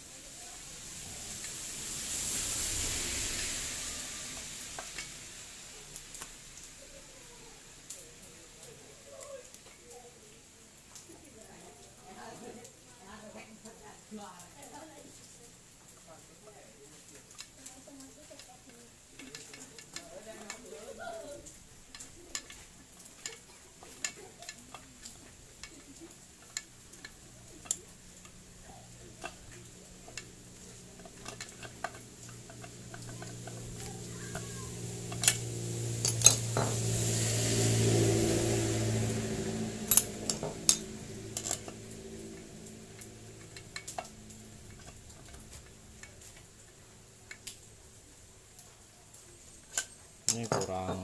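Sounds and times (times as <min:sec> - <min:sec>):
low hum with hiss: 0:00.0 - 0:51.0
metal engine parts clinking: 0:29.0 - 0:36.8, 0:39.1 - 0:46.5.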